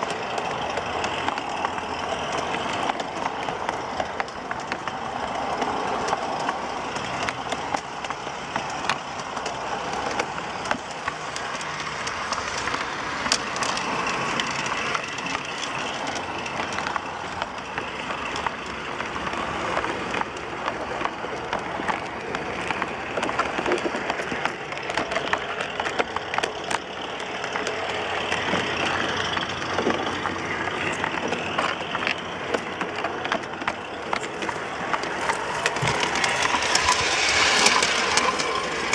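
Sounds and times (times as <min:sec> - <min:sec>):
model train wheels rattling on rails: 0:00.0 - 0:38.9
wheels clicking over rail joints: 0:00.0 - 0:38.9.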